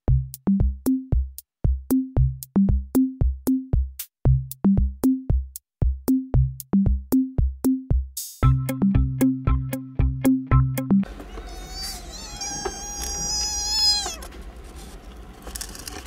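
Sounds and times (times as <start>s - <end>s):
drum-machine beat: 0.1s - 11.0s.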